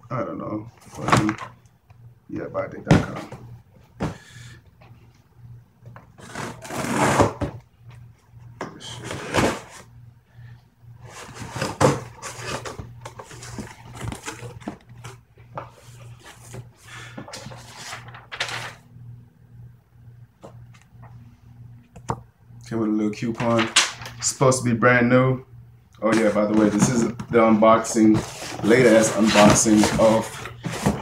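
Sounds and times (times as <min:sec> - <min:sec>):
cardboard scraping and tearing: 0:06.2 - 0:07.4, 0:28.0 - 0:31.0.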